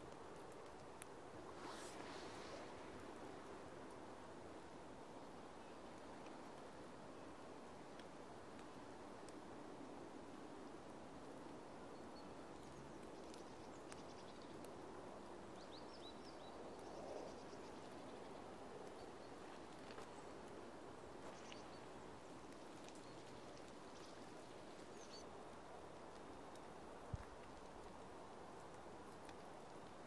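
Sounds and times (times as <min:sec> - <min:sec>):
steady low hiss: 0:00.0 - 0:30.0
faint high bird chirps: 0:24.9 - 0:25.3.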